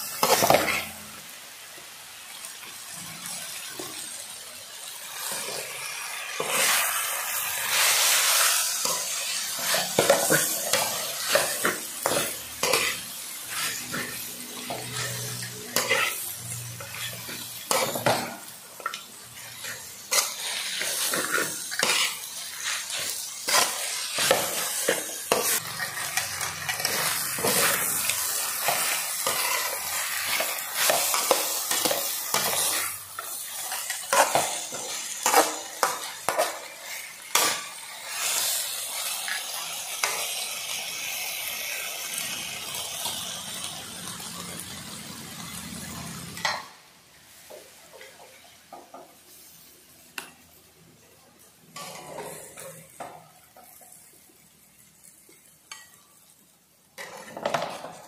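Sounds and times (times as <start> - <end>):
spatula scraping metal wok: 0.0 - 1.1, 5.1 - 40.7, 57.0 - 58.0
food sizzling: 0.0 - 58.0.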